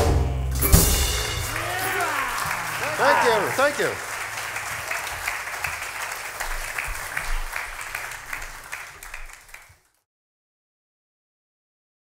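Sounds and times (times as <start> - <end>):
audience applauding: 1.0 - 10.0.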